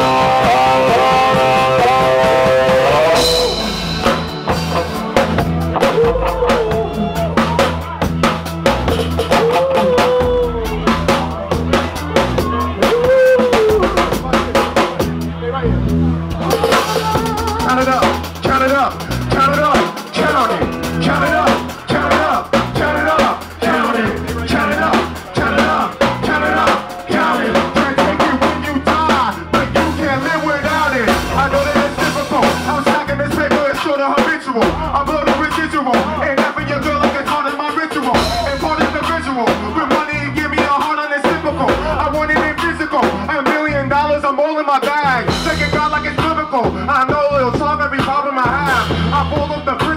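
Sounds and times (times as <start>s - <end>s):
person singing into microphone: 0.0s - 3.9s, 16.4s - 18.1s
drum kit: 0.0s - 49.9s
live band playing: 0.0s - 49.9s.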